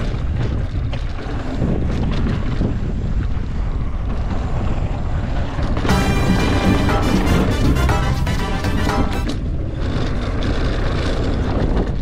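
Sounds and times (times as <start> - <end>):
bike knocks and rattles: 0.0 - 3.0
bike rolling over rocky trail: 0.0 - 5.9
wind buffeting microphone: 0.0 - 5.9, 9.4 - 12.0.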